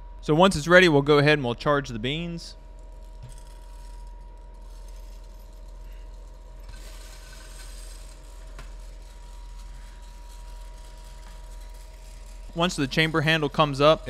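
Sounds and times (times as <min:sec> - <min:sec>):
coffee roaster humming: 0:00.0 - 0:14.0
coffee beans rushing and tumbling: 0:02.8 - 0:14.0.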